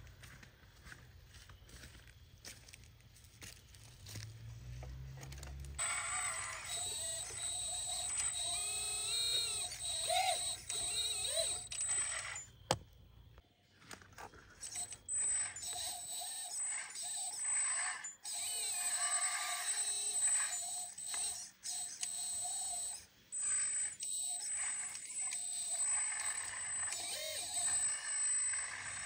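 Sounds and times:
electric hydraulic pump whining: 5.2s - 12.9s, 14.5s - 29.0s.

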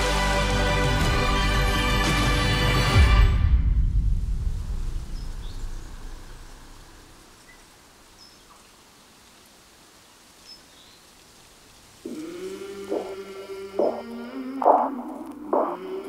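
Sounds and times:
music: 0.0s - 4.7s
outdoor ambience: 0.0s - 16.0s.

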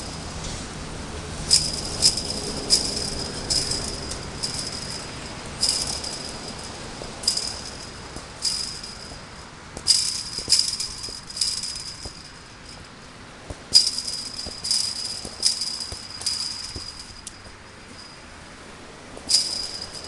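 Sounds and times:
ball hitting chain-link fence: 1.5s - 18.2s, 19.2s - 20.0s.

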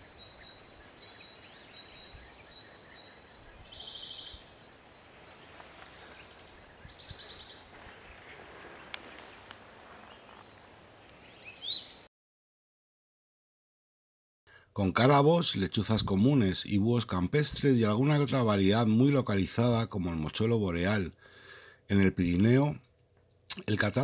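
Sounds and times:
bird trills: 0.0s - 12.1s
rising bird chirps: 0.0s - 12.1s.

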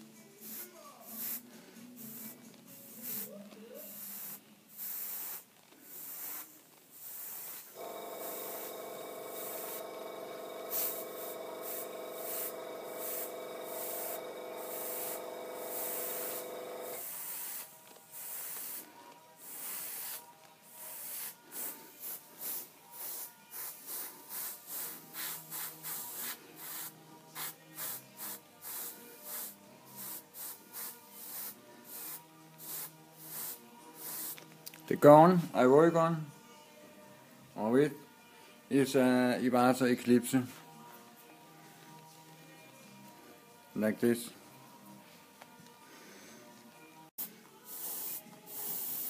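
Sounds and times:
airbrush spraying in hissing bursts: 0.4s - 34.4s, 47.2s - 49.0s.

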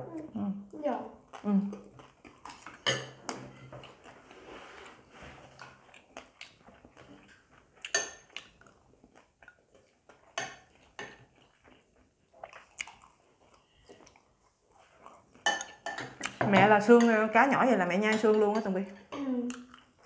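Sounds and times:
quiet eating and chewing: 0.0s - 20.0s.

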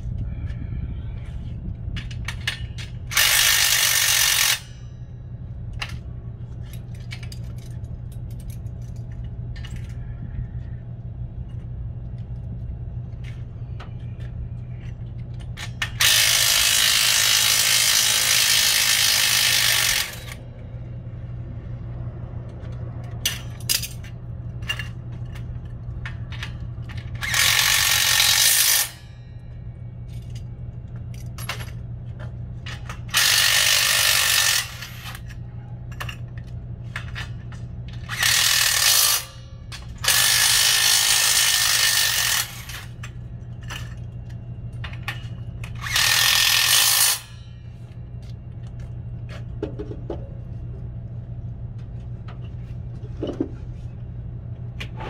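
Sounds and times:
steady low hum: 0.0s - 55.0s
power tool driving fasteners: 3.1s - 4.7s, 15.8s - 20.4s, 26.9s - 29.0s, 33.1s - 35.2s, 45.7s - 47.4s.

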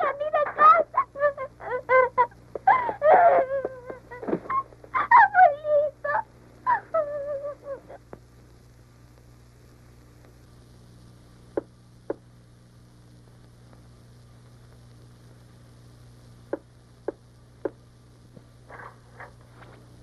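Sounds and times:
girl crying: 0.0s - 8.0s
girl sobbing: 0.0s - 8.0s
faint steady hum: 0.0s - 20.0s.

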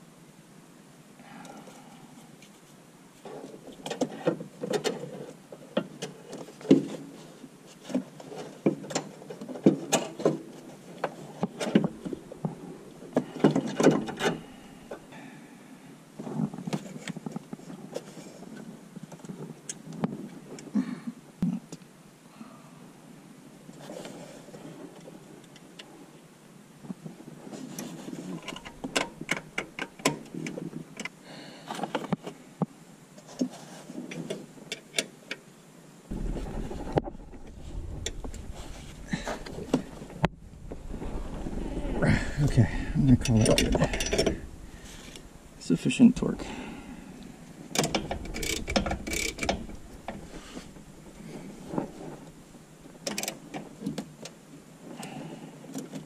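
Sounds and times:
metal hand tools clinking: 43.2s - 44.4s
wrench clicking on metal fittings: 47.8s - 49.6s.

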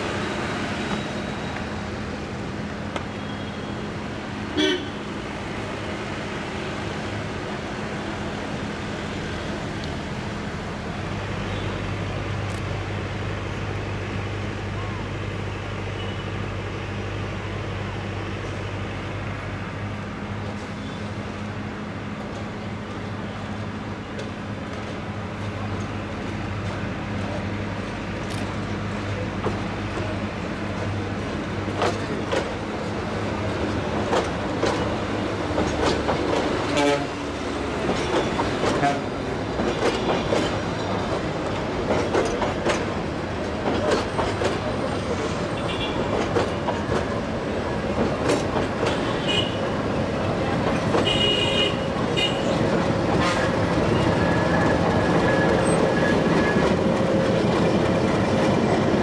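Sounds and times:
diesel locomotive engine: 0.0s - 59.0s
train wheels clicking over rail joints: 22.2s - 59.0s
wheel squeals: 53.7s - 57.0s.

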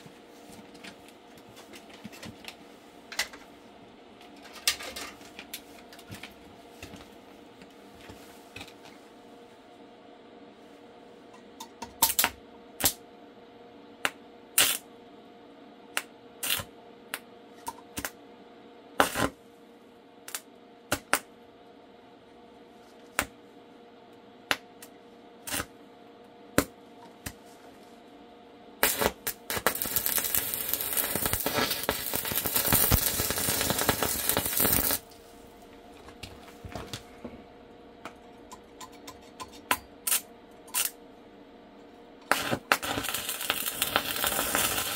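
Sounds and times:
steady hum: 0.0s - 44.9s
loud crackling hiss: 28.8s - 35.0s.

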